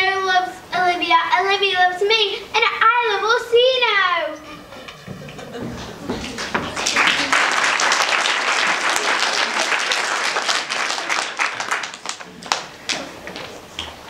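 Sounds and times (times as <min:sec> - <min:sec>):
audience applauding: 0:05.3 - 0:13.6.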